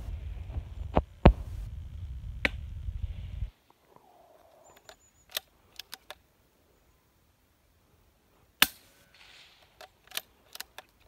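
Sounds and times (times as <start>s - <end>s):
light rifle clicks: 4.5s - 6.3s, 8.6s - 11.0s.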